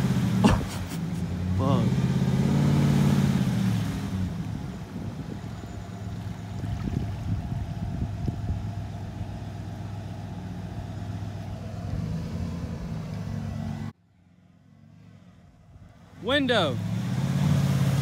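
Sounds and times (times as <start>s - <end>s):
pickup truck engine running: 4.4s - 13.9s.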